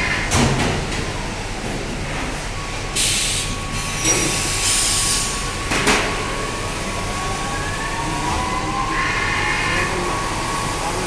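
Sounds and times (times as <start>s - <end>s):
hiss bursts: 3.0s - 5.4s.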